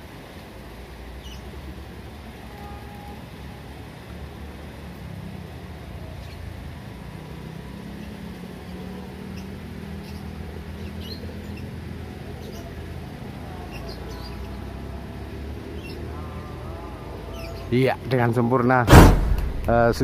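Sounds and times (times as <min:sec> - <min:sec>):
low engine rumble: 0:18.9 - 0:20.0.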